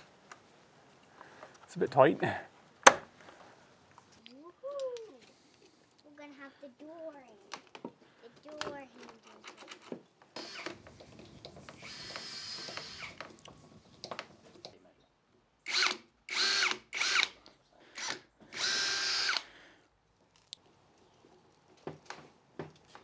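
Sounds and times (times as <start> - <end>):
cordless drill motor whirring: 10.4 - 10.8, 11.7 - 13.2, 15.7 - 17.4, 18.0 - 19.5.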